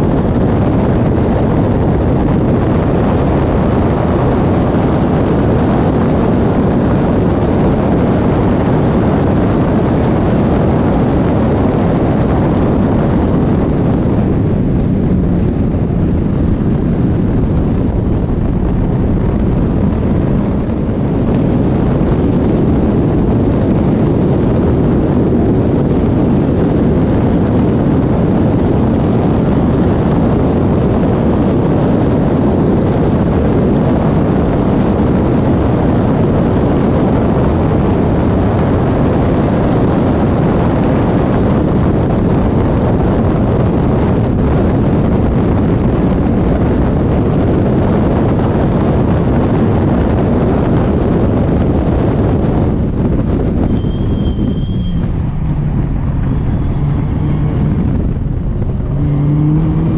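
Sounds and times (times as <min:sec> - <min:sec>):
car engine at racing speed: 0:00.0 - 0:59.9
wind noise on microphone: 0:00.0 - 0:59.9.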